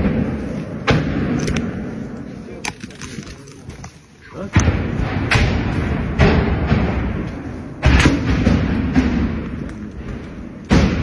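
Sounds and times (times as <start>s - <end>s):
loud bangs echoing in corridors: 0.0s - 11.0s.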